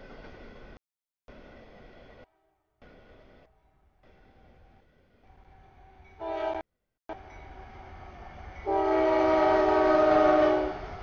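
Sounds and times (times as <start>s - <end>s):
locomotive air horn blasts: 6.2s - 6.6s, 8.6s - 10.8s.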